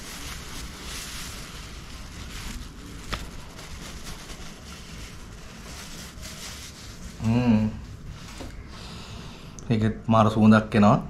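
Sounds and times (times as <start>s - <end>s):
wrapping sheet crinkling: 0.0s - 8.7s.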